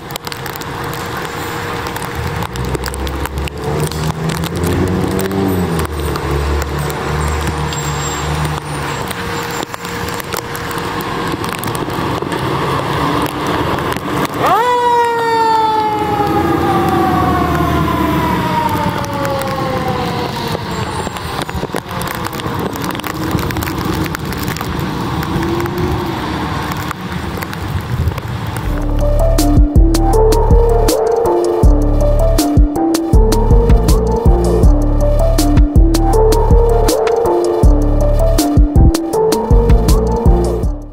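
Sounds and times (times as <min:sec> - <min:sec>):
tyres hissing on wet road: 0:00.0 - 0:14.6, 0:16.3 - 0:29.6
fire engine mechanical siren: 0:00.1 - 0:12.4, 0:13.2 - 0:27.6, 0:28.6 - 0:40.9
truck engine running: 0:28.6 - 0:40.9.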